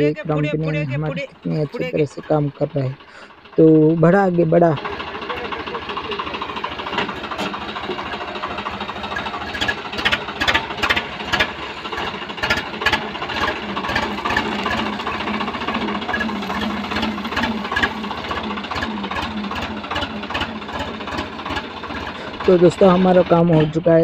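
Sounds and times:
tractor diesel engine running: 0.0 - 24.0
sharp clicks and knocks: 4.7 - 22.2.

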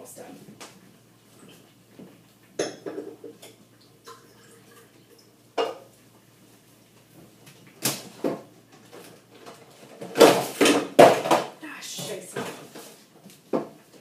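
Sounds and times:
kitchen items knocking and clattering: 2.6 - 3.6, 7.8 - 13.8.

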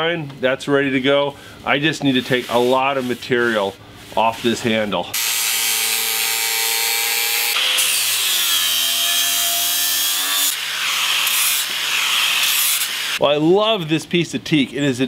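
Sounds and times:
angle grinder sanding wood: 5.2 - 13.2.

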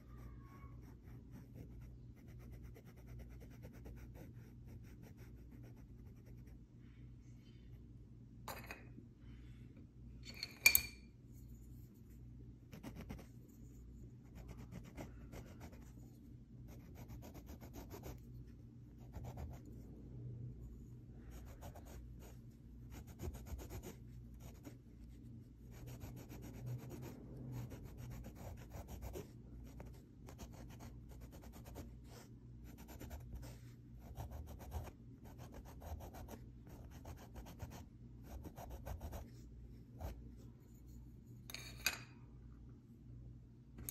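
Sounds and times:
pencil scratching on cloth: 0.0 - 6.6, 12.7 - 16.1, 16.7 - 18.3, 19.0 - 19.8, 21.3 - 24.8, 25.7 - 39.4.

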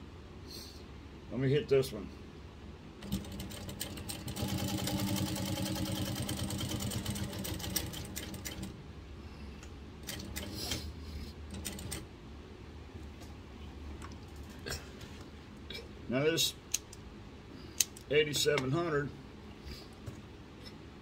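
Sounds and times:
sewing machine stitching leather: 3.0 - 8.7, 10.0 - 10.9, 11.5 - 12.0.

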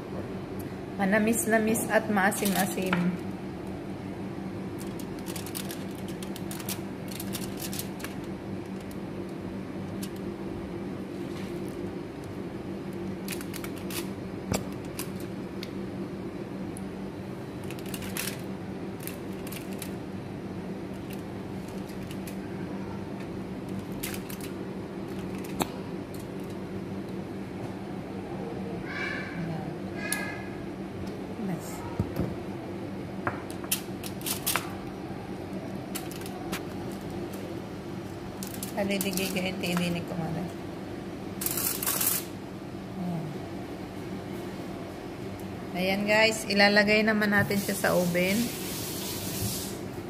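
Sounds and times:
steady low hum: 0.0 - 48.3
aluminium foil crinkling: 4.7 - 10.3, 13.0 - 15.4, 17.6 - 20.1, 20.9 - 22.5, 23.6 - 26.6, 33.7 - 40.1, 41.4 - 42.4.

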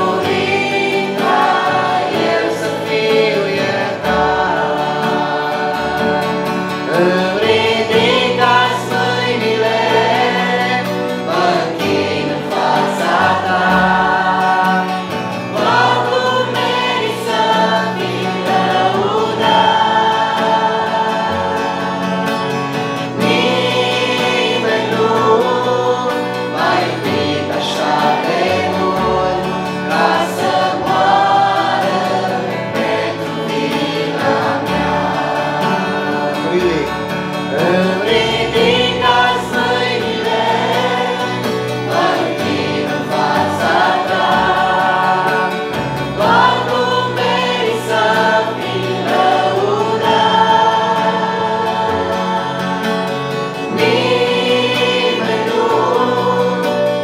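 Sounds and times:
acoustic guitar strumming: 0.0 - 57.0
group singing worship song: 0.0 - 57.0.

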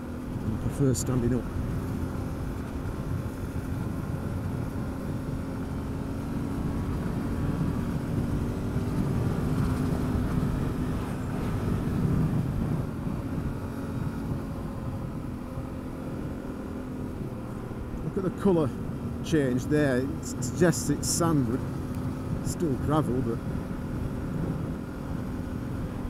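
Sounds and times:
motorcycle engine cruising: 0.0 - 26.0
wind rumble: 0.0 - 26.0.

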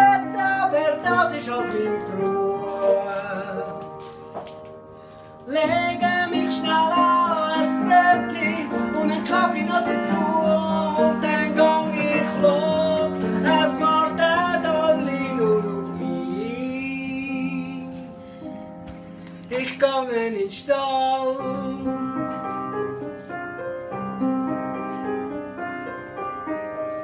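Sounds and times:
person singing: 0.0 - 4.2, 5.4 - 18.3, 19.4 - 22.6.

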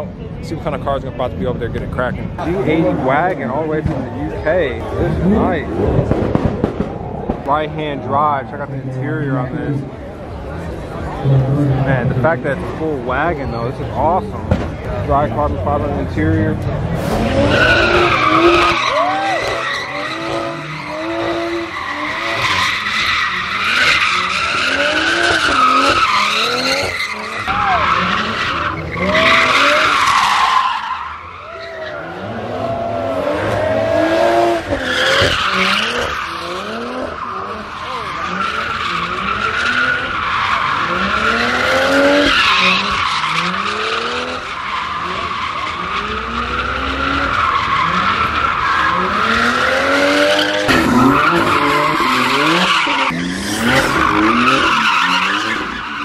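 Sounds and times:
car engine revving: 0.5 - 56.0
tyres squealing: 17.1 - 49.7, 50.3 - 56.0.

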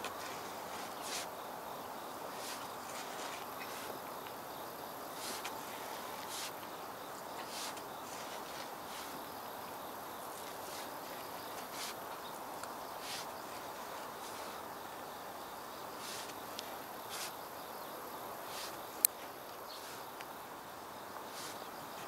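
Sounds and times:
hand hoe scraping soil: 0.0 - 1.3, 2.3 - 4.3, 5.1 - 6.7, 7.4 - 9.3, 10.3 - 12.3, 12.9 - 14.6, 16.0 - 17.4, 18.4 - 19.1, 21.3 - 22.0
insects buzzing: 0.0 - 22.0.

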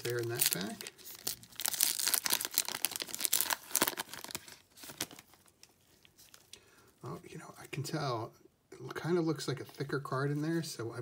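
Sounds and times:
foil wrapper crinkling and tearing: 0.0 - 6.6.

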